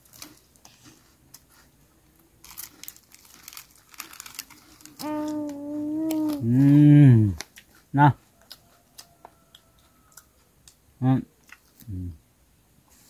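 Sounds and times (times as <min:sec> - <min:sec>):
plastic snack packet crinkling: 0:00.0 - 0:00.8, 0:02.4 - 0:06.7.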